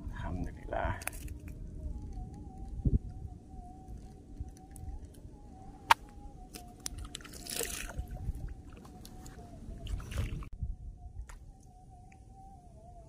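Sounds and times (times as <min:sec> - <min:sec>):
wind rumbling on microphone: 0:00.0 - 0:13.0
water splashing and sloshing: 0:06.8 - 0:10.6.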